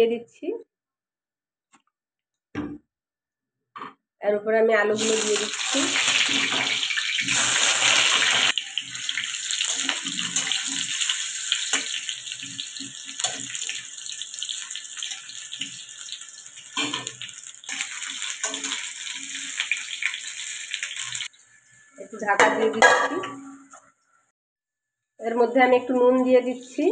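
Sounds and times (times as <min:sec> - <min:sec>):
potatoes sizzling in hot oil: 0:04.9 - 0:23.0
spatula scraping a pan: 0:05.8 - 0:13.8, 0:16.8 - 0:20.2.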